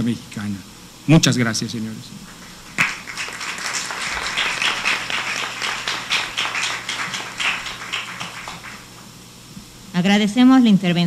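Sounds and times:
audience applauding: 0:02.2 - 0:09.1.

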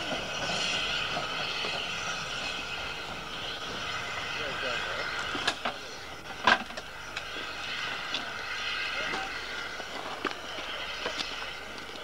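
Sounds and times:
steam hissing: 0:00.0 - 0:12.0.

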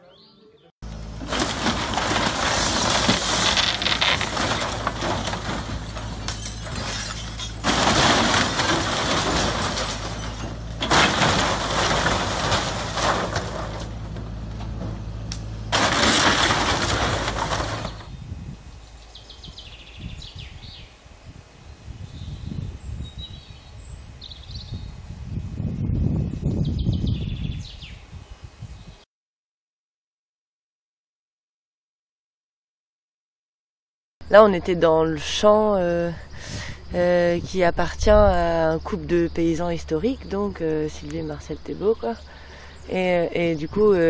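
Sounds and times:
outdoor background noise: 0:00.0 - 0:29.1, 0:34.2 - 0:44.0
excavator engine hum: 0:00.8 - 0:20.0
wood crashing and splintering: 0:01.0 - 0:18.1.

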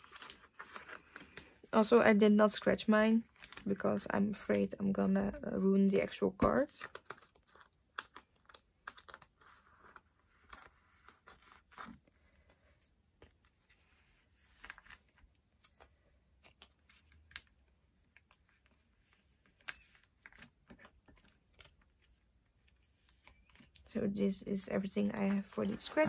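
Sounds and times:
paper rustling: 0:00.0 - 0:01.6, 0:06.0 - 0:17.5, 0:24.6 - 0:26.0.

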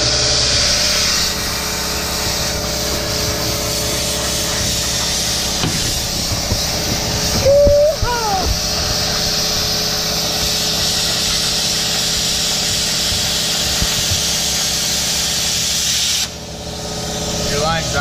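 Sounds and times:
plasma cutter hissing: 0:00.0 - 0:18.0
short pitched whoop: 0:07.3 - 0:08.7.

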